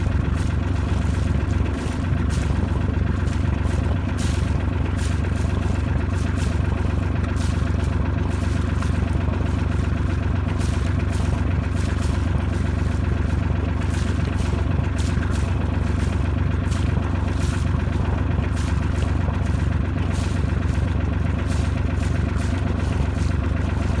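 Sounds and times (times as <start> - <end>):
boat engine droning: 0.0 - 24.0.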